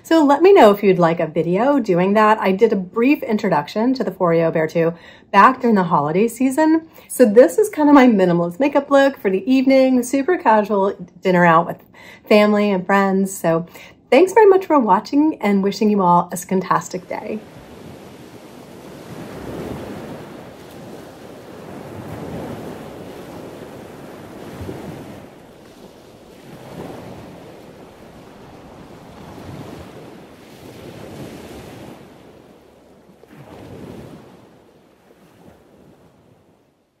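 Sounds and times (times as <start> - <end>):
ocean surf breaking on beach: 16.5 - 36.8.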